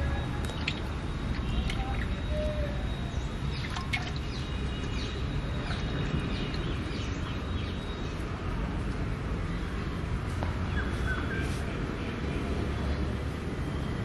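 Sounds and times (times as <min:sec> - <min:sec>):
small birds chirping: 0:00.0 - 0:08.3.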